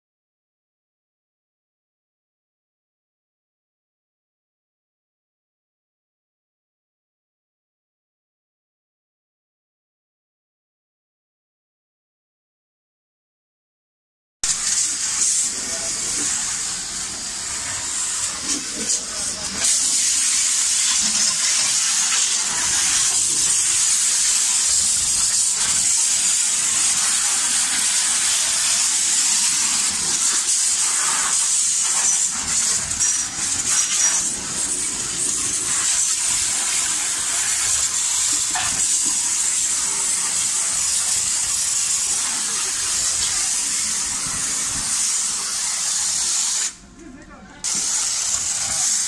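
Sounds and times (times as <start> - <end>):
water jet spraying on metal: 14.5 - 46.8, 47.6 - 49.0.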